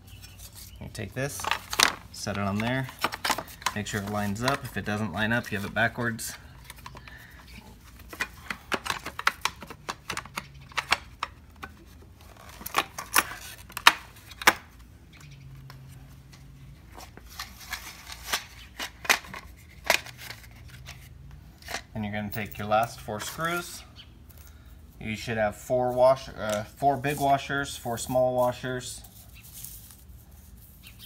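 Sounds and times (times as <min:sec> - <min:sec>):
hard plastic parts clicking: 0:01.3 - 0:16.4, 0:17.7 - 0:21.0.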